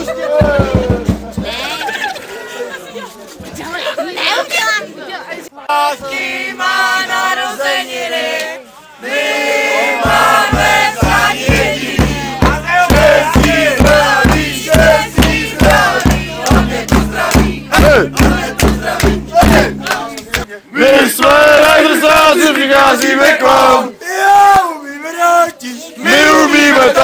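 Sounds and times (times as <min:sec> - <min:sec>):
group of voices chanting: 0:05.6 - 0:24.5, 0:26.0 - 0:27.0
beat with bass line: 0:10.0 - 0:20.1.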